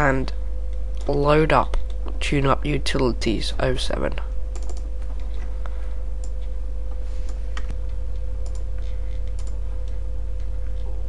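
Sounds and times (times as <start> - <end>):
low electrical hum: 0.0 - 11.0
mouse and keyboard clicks: 8.4 - 10.0.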